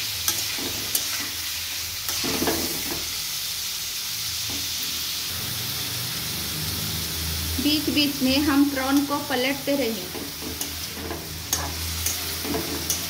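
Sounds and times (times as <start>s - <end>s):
prawns sizzling in hot oil: 0.0s - 13.0s
metal spatula scraping pan: 10.1s - 13.0s
spatula clicking on pan: 11.5s - 13.0s.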